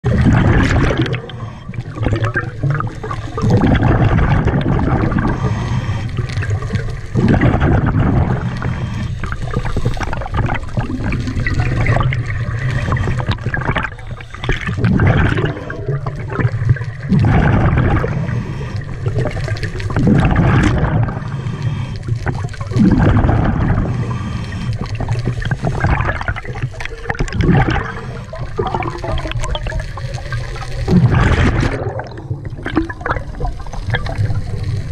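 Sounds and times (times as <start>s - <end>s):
exhaled bubbles gurgling: 0.0s - 34.9s
regulator inhalations: 5.3s - 6.9s, 18.0s - 19.2s, 21.2s - 22.2s, 23.8s - 25.8s.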